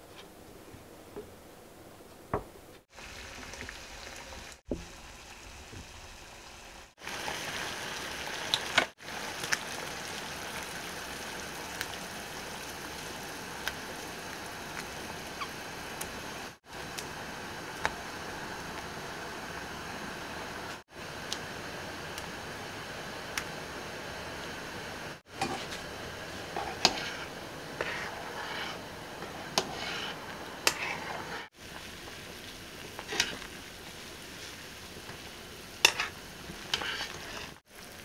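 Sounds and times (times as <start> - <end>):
water boiling in a pot: 2.9 - 38.0.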